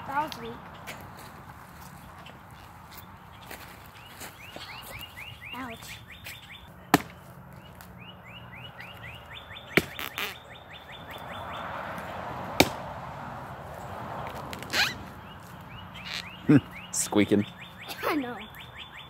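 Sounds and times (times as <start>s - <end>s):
axe chopping log: 6.9s - 7.2s, 9.8s - 10.1s, 12.6s - 12.8s.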